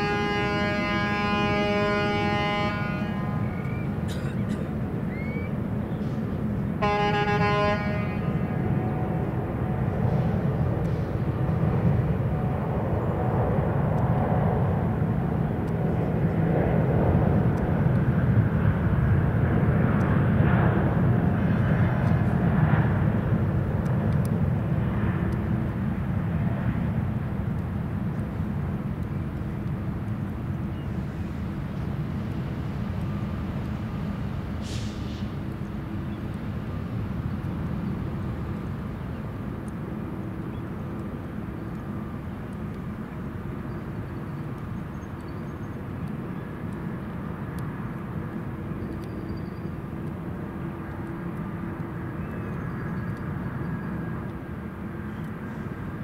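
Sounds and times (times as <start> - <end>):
horn sounding a chord: 0.0 - 3.5, 6.8 - 8.6
jet engines droning: 0.0 - 56.0.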